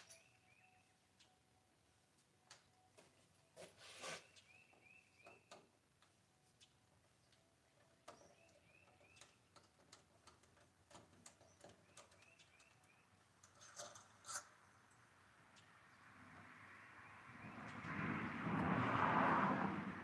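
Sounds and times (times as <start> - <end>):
bird chirping: 0.0 - 1.7, 4.1 - 5.7, 6.5 - 9.8, 11.2 - 13.7.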